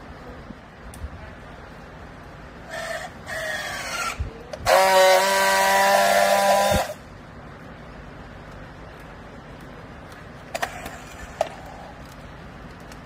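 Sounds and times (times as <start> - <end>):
strapping tool welding buzz: 4.6 - 7.0.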